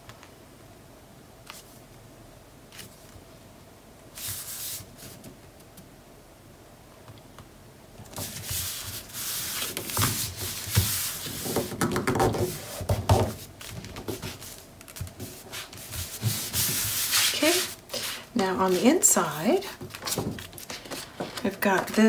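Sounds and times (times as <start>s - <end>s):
hands swishing over paper: 4.2s - 5.4s, 8.1s - 11.7s, 12.5s - 21.9s.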